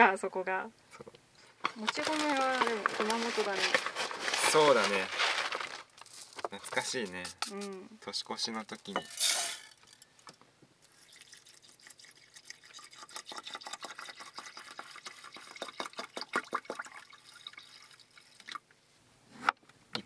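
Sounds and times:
water pouring into metal pot: 10.8s - 18.6s.

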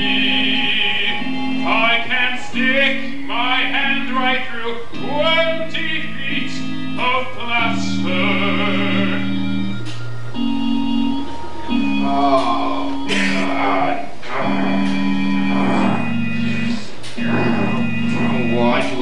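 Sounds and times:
held accompaniment chords: 0.0s - 19.0s
person singing opera-style: 12.0s - 19.0s.

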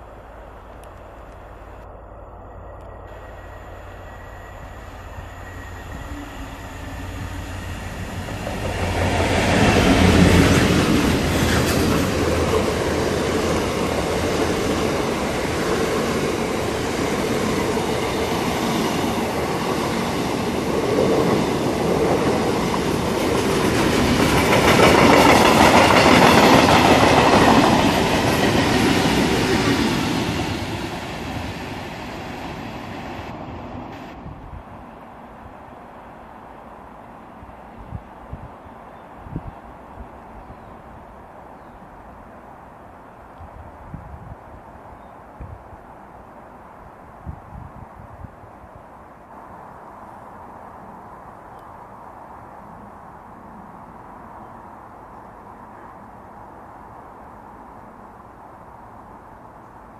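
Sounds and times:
diesel locomotive passing: 0.0s - 37.9s
train wheels clattering over rails: 19.3s - 30.9s.

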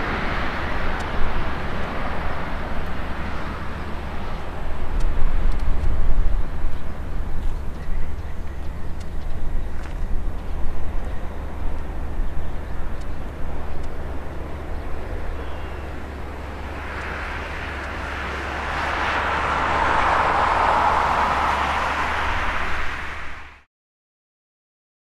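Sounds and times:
jet engines roaring: 0.0s - 23.7s
low rumble: 10.5s - 23.7s.

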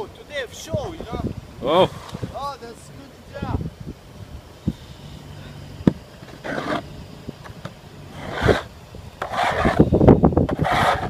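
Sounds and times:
snow shovel scraping pavement: 6.2s - 6.9s, 8.1s - 9.9s, 10.5s - 11.0s.

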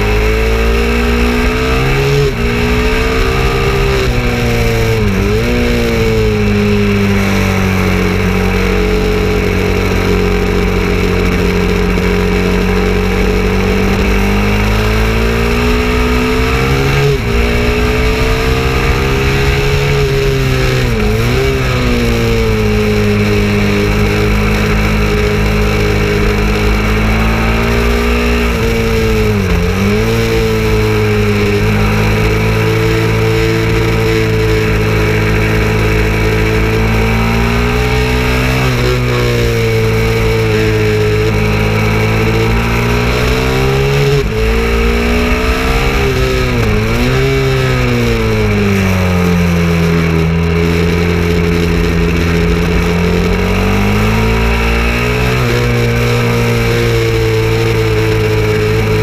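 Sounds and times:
motorcycle engine at high revs: 0.0s - 59.0s
wind rushing: 13.5s - 33.9s.

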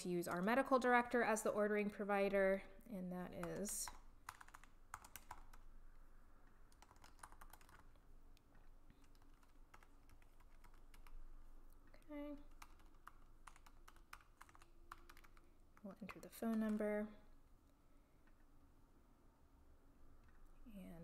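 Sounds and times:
typing on computer keyboard: 3.3s - 5.7s, 6.7s - 8.0s, 9.0s - 11.2s, 12.4s - 16.9s.

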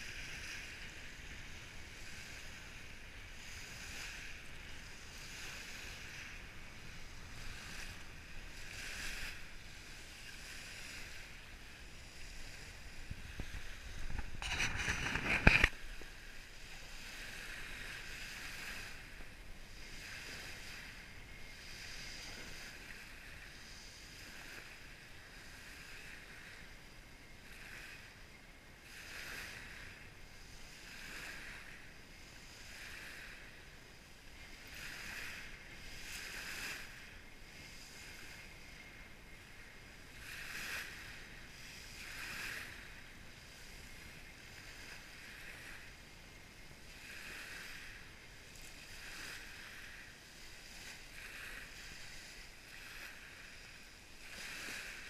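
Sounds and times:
waves washing onto pebble beach: 0.0s - 26.6s, 46.8s - 55.0s.

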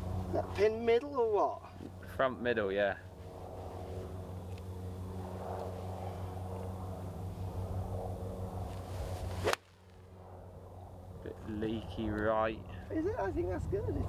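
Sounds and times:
low background hum: 0.0s - 14.0s
golf club swishing: 8.7s - 10.0s
golf club striking ball: 8.7s - 10.1s.

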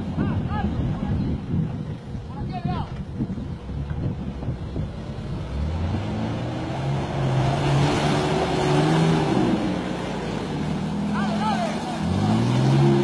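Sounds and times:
engine revving under load: 3.6s - 13.0s.

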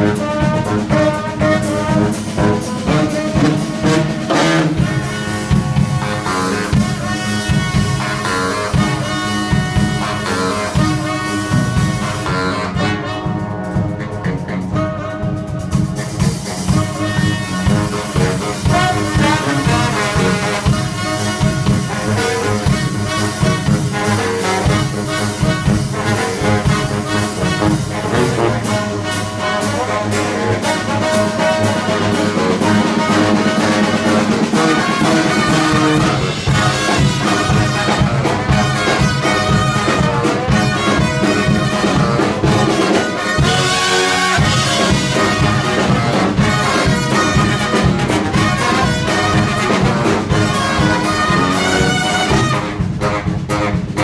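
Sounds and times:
brass band playing: 0.0s - 54.0s
drum kit hits: 31.2s - 54.0s.

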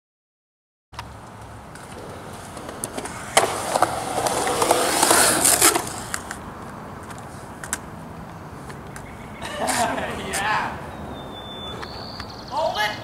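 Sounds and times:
skateboard clack: 1.0s - 6.4s
skateboard wheels rolling: 1.0s - 10.4s.

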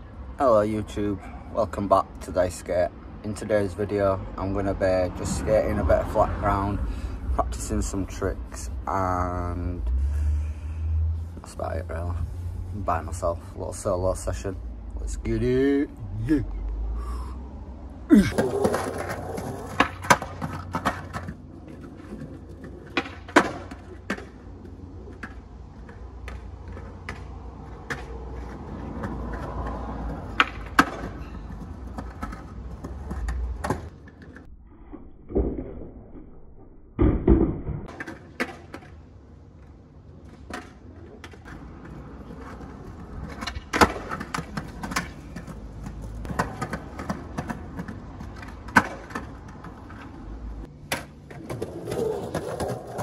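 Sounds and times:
skateboard wheels rolling on concrete: 0.0s - 34.5s, 37.8s - 53.0s
skateboard clacks and landings: 18.3s - 24.5s, 25.1s - 34.5s, 37.0s - 39.0s, 40.3s - 50.2s, 50.8s - 53.0s.

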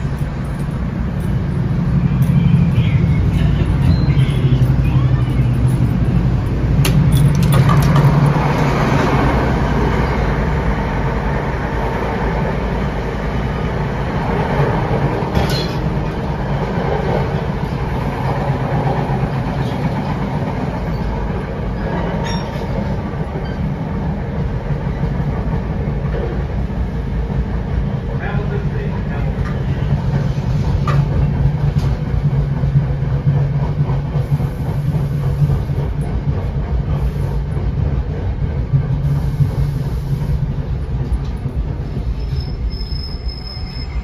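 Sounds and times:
train wheels rumbling on rails: 0.0s - 44.0s.

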